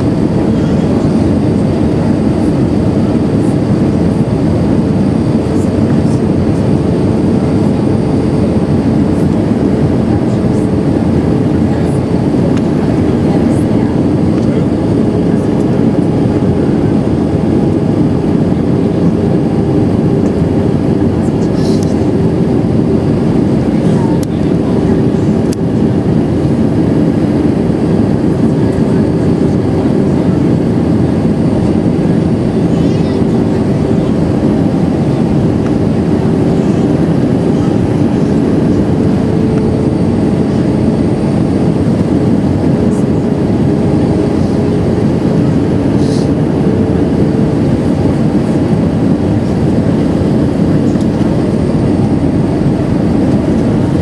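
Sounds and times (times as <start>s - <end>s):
jet engines and airflow rushing: 0.0s - 54.0s
steady hum: 0.0s - 54.0s.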